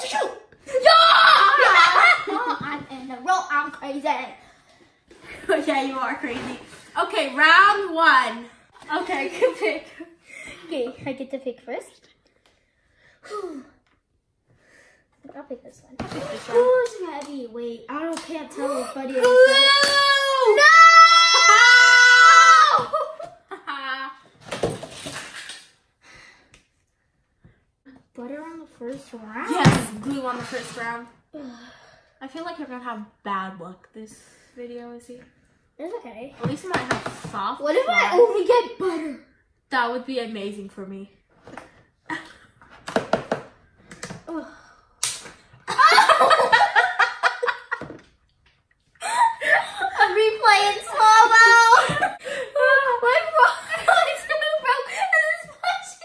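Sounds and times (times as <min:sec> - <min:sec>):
girl shouting: 0:00.0 - 0:02.0, 0:19.1 - 0:23.0, 0:50.1 - 0:55.5
girl crying out: 0:18.6 - 0:23.1.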